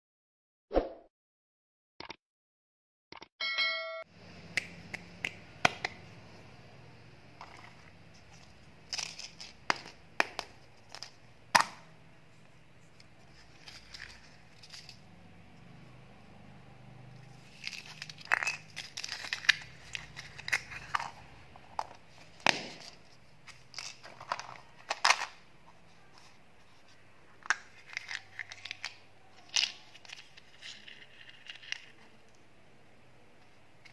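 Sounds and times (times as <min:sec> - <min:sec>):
plastic crinkling and tearing: 0:17.3 - 0:21.2, 0:27.5 - 0:32.2.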